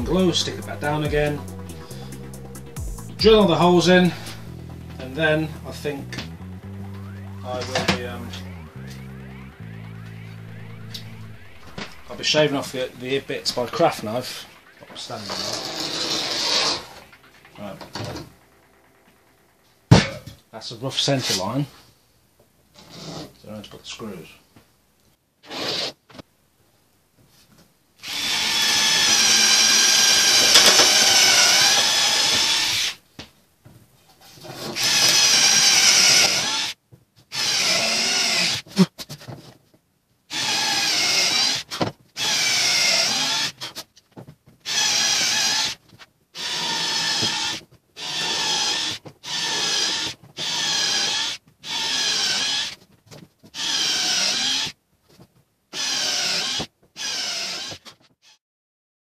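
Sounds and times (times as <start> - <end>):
cordless drill boring wood: 28.0 - 33.0, 34.8 - 38.6, 40.3 - 43.7, 44.7 - 45.8, 46.4 - 52.8, 53.6 - 54.7, 55.7 - 58.4.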